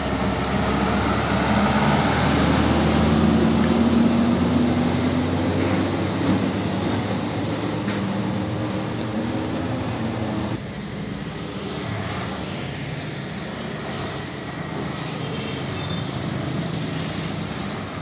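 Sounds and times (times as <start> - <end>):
diesel truck driving past: 0.0 - 10.6.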